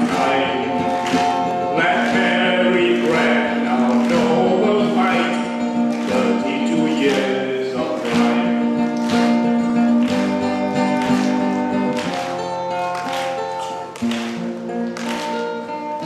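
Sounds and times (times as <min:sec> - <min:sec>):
man singing a folk ballad: 0:00.0 - 0:09.0
acoustic guitar strumming: 0:00.0 - 0:16.0.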